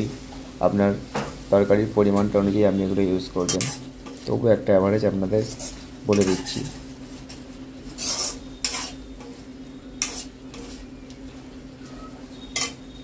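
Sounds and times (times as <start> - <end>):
curry sizzling: 0.0 - 13.0
metal spatula scraping a pan: 3.4 - 4.2, 5.4 - 10.9, 12.4 - 13.0.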